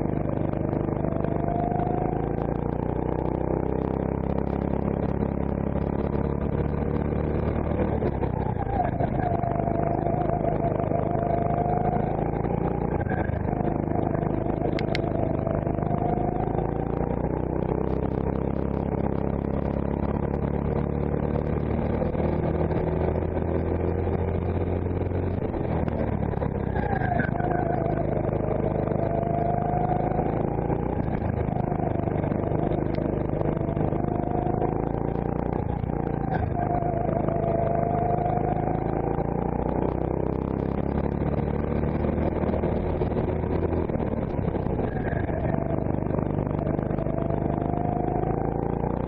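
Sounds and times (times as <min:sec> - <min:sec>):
go-kart engine running: 0:00.0 - 0:49.0.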